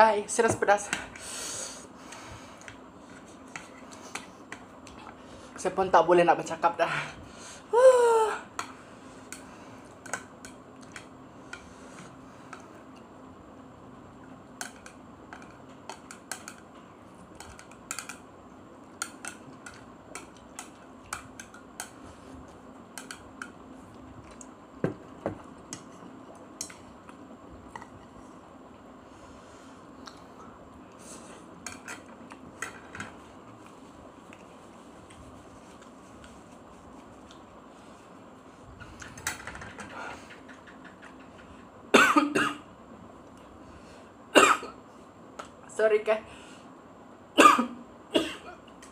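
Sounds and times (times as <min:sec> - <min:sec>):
faint steady hum: 0:00.0 - 0:48.9
chopsticks clicking on a plate: 0:14.6 - 0:16.7, 0:23.0 - 0:23.6.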